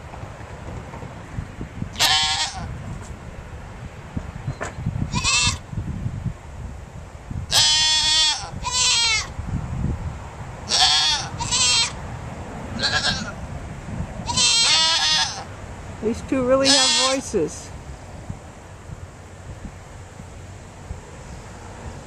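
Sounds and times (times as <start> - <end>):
goats bleating: 2.0 - 2.7, 10.7 - 12.0, 12.8 - 13.4, 14.3 - 15.5, 16.6 - 17.2.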